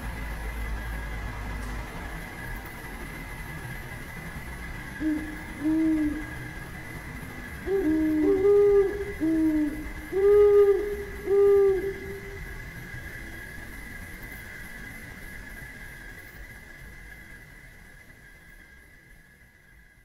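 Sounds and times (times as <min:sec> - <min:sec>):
steady high whine: 0:00.0 - 0:20.0
low hooting calls: 0:04.9 - 0:13.0
higher-pitched hooting caller: 0:05.0 - 0:07.0, 0:07.6 - 0:12.7.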